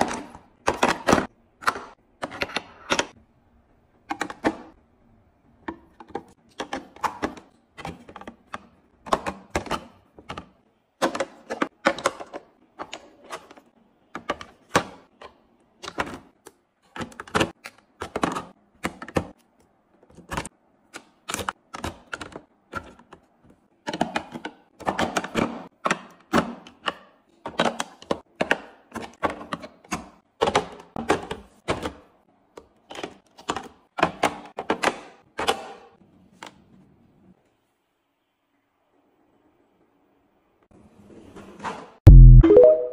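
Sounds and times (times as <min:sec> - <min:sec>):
containers clicking and clunking: 0:05.6 - 0:19.4.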